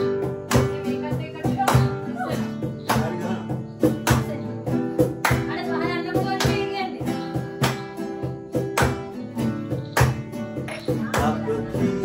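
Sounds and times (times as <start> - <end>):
acoustic guitar strumming: 0.0 - 12.0
loud hand claps: 0.4 - 0.9, 1.6 - 2.0, 2.8 - 6.8, 7.4 - 11.5
person singing: 10.8 - 12.0.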